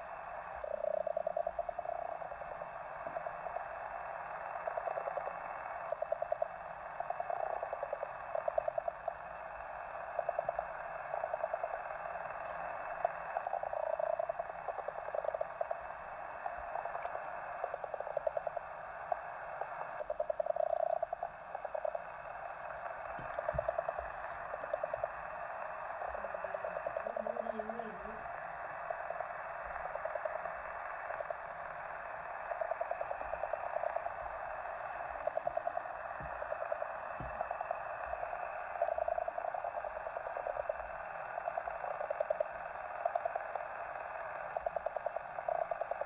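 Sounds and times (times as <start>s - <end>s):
radio static hiss: 0.0s - 46.0s
rapid clicking crackle: 0.0s - 46.0s
warbling tone: 12.9s - 40.8s.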